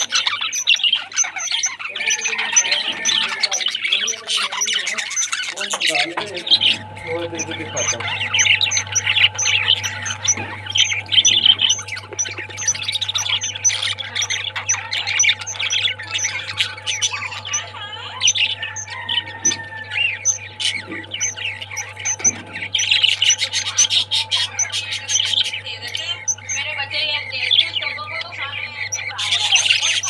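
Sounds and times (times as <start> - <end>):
budgerigars chattering: 0.0 - 30.0
steady low hum: 0.0 - 30.0.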